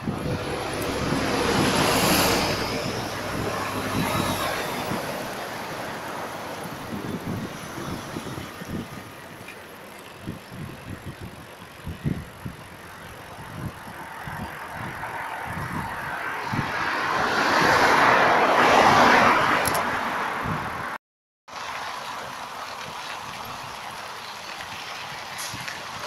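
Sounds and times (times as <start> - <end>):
vehicle passing: 0.0 - 10.3, 11.3 - 21.0
wind buffeting microphone: 0.0 - 21.0.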